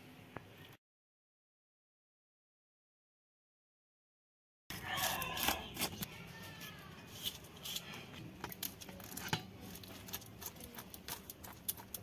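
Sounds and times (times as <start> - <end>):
knife scraping fish scales: 4.7 - 6.1, 7.0 - 12.0.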